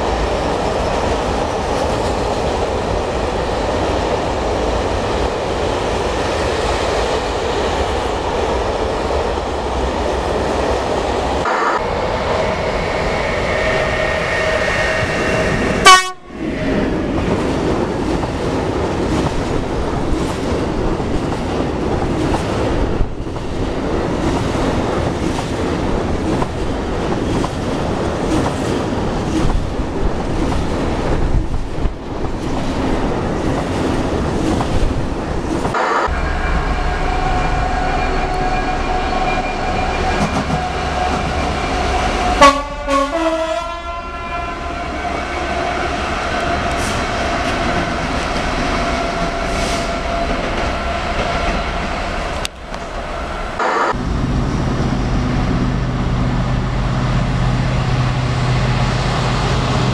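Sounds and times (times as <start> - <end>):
train wheels rumbling and clattering: 0.0 - 43.2, 44.9 - 59.9
train horn blast falling in pitch: 15.8 - 16.3, 36.0 - 45.8.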